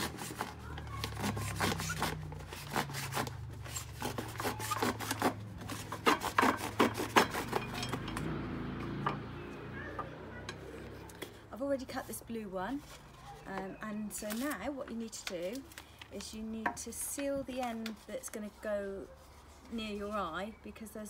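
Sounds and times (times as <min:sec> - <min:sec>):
serrated knife sawing cardboard tube: 0:00.0 - 0:07.8.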